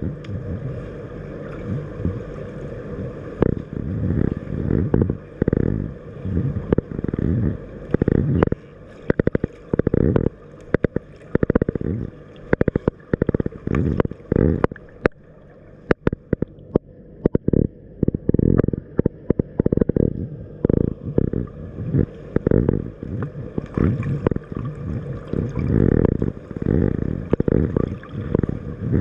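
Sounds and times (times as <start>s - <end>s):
muffled underwater rushing surges: 0.0s - 29.0s
sharp clicks and pops: 7.9s - 11.8s, 12.5s - 15.2s, 15.8s - 20.9s.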